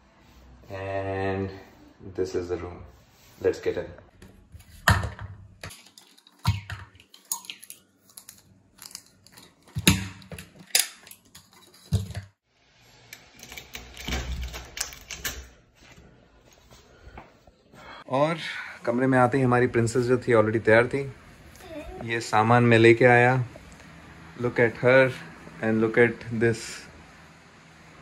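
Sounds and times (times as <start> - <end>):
keys being taken out: 13.3 - 15.6.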